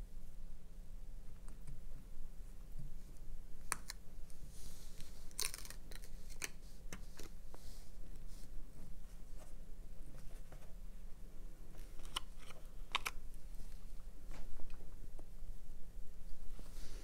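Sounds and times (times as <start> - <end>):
steady low hum: 0.0 - 17.0
light clicks and crinkles: 3.6 - 8.5, 11.7 - 15.3.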